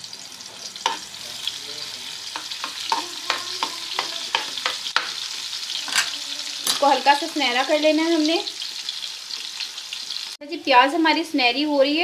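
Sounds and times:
onion sizzling in oil: 0.0 - 12.0
utensil clicking against pan: 2.3 - 5.2.

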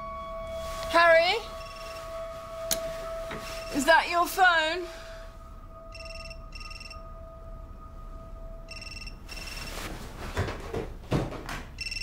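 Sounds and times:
mobile phone ringing: 1.5 - 2.1, 5.9 - 7.0, 8.7 - 9.9, 11.8 - 12.0
footsteps on wooden floorboards: 9.8 - 11.8.

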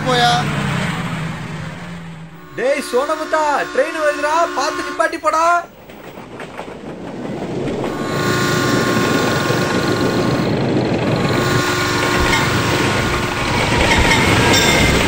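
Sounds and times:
train rumble: 0.0 - 15.0
train horn blasts: 2.3 - 5.6, 7.8 - 15.0.

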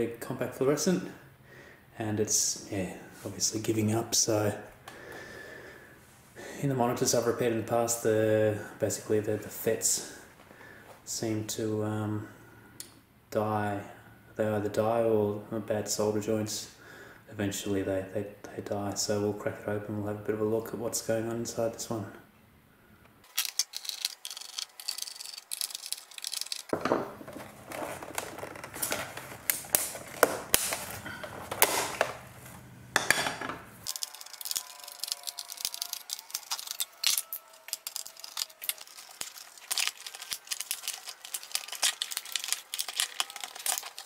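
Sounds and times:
screwdriver clicking and scraping plastic: 33.9 - 44.0.

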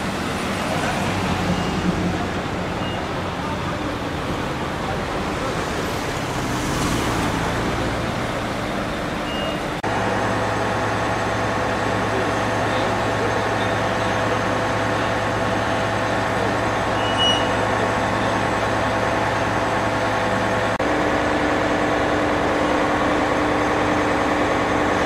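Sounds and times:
traffic passing: 0.0 - 25.0
engine idling: 7.2 - 25.0.

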